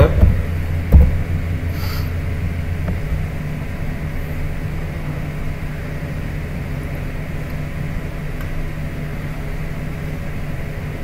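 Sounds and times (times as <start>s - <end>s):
steady low hum: 0.0s - 11.0s
sharp thump: 0.1s - 1.4s.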